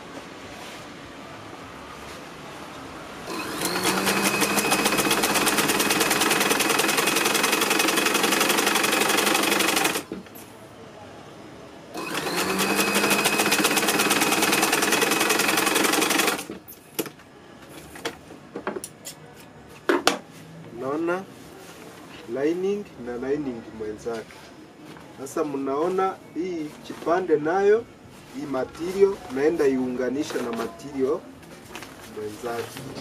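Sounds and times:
sewing machine stitching: 0:03.3 - 0:10.2, 0:12.0 - 0:16.6.

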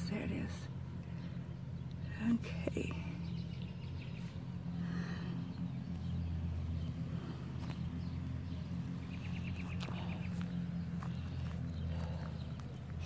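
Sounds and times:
low mechanical hum: 0:00.0 - 0:13.0
footsteps on grass and soil: 0:07.3 - 0:13.0.

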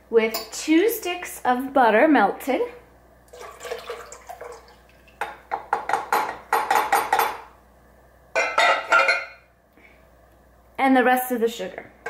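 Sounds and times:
liquid pouring into a metal bowl: 0:03.3 - 0:05.3
glass clinking on metal: 0:08.4 - 0:09.4.

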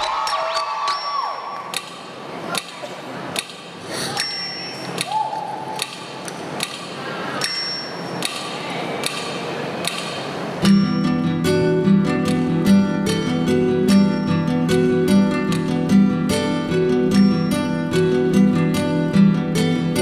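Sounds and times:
sharp clock-like ticks: 0:01.7 - 0:05.2, 0:05.8 - 0:10.2.

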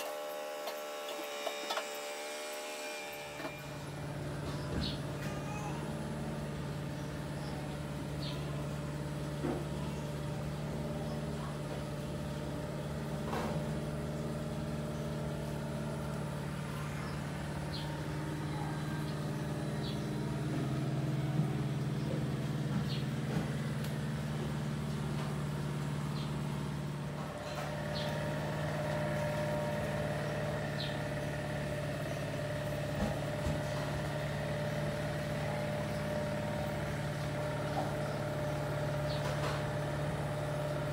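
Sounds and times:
low mechanical hum: 0:00.0 - 0:40.9.

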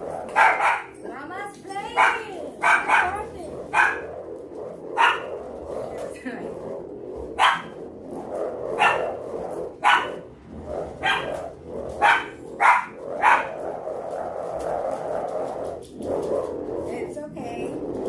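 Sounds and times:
dog barking: 0:00.3 - 0:01.0, 0:02.0 - 0:04.1, 0:05.0 - 0:05.4, 0:07.4 - 0:07.8, 0:08.7 - 0:09.2, 0:09.8 - 0:10.2, 0:11.0 - 0:11.4, 0:12.0 - 0:13.6.

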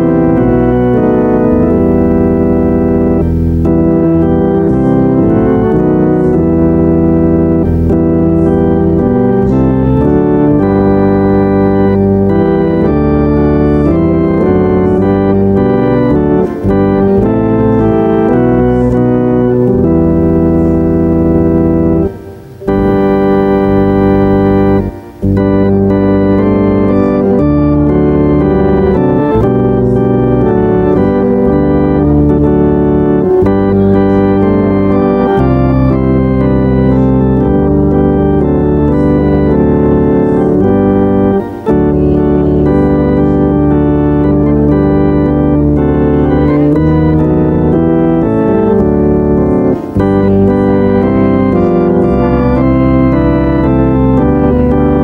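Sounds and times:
church organ chords: 0:00.0 - 0:55.0.

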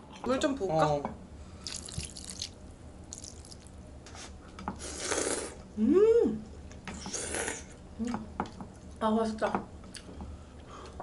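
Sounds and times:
noodle slurp: 0:04.9 - 0:05.6.

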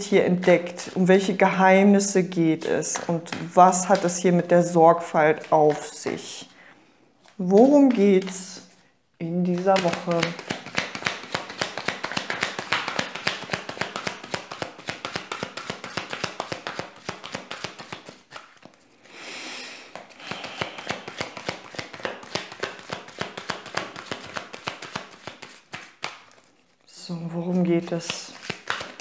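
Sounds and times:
cards shuffling and clicking: 0:00.1 - 0:06.5, 0:07.2 - 0:08.7, 0:09.3 - 0:18.8, 0:19.9 - 0:29.0
cards smooth swish: 0:09.5 - 0:26.5, 0:27.5 - 0:29.0.

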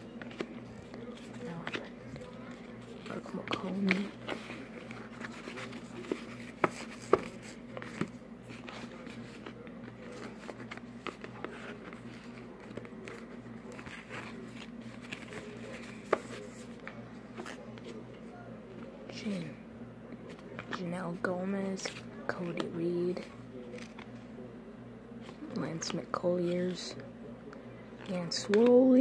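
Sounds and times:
cards sliding and rustling: 0:00.1 - 0:18.0.

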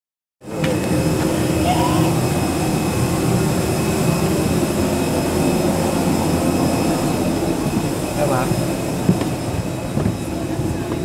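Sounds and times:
jet airliner drone: 0:00.4 - 0:11.0.

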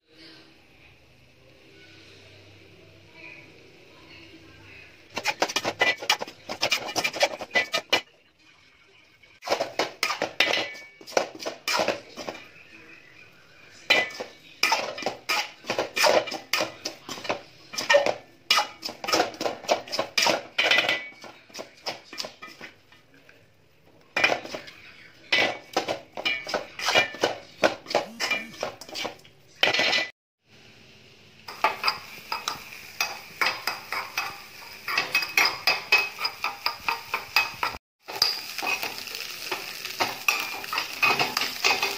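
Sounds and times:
food sizzling: 0:03.5 - 0:12.6, 0:24.2 - 0:29.2, 0:30.4 - 0:41.9
spoon scraping a metal pan: 0:05.1 - 0:08.1, 0:13.9 - 0:16.7, 0:26.2 - 0:29.2
steel spoon clinking in pan: 0:31.5 - 0:41.9.

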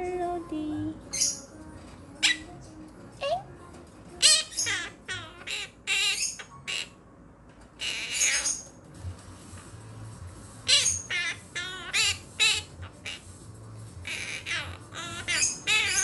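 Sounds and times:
parrots chattering: 0:01.1 - 0:01.5, 0:02.2 - 0:02.5, 0:04.2 - 0:07.0, 0:07.7 - 0:08.8, 0:10.6 - 0:16.0.

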